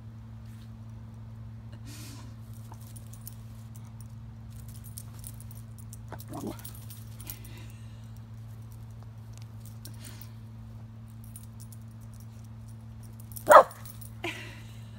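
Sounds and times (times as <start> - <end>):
steady low hum: 0.0 - 14.9
dog collar tags jingling: 2.5 - 7.7, 11.1 - 14.2.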